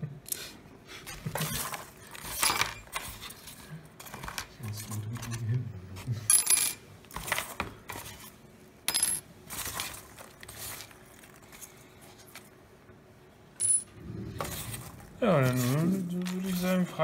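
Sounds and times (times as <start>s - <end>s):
small metal pieces clinking: 8.9s - 9.2s.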